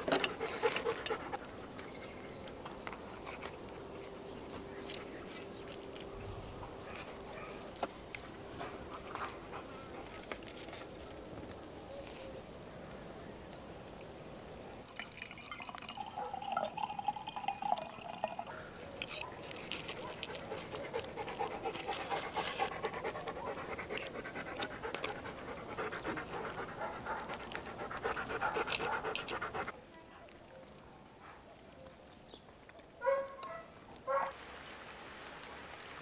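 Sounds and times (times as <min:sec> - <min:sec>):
knife and fork cutting crackly skin: 0:19.0 - 0:21.0.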